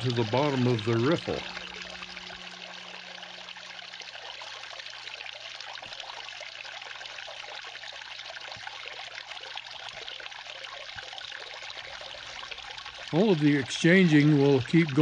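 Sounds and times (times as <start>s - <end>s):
faint low hum: 0.0s - 5.3s
water running over wooden riffles: 0.0s - 15.0s.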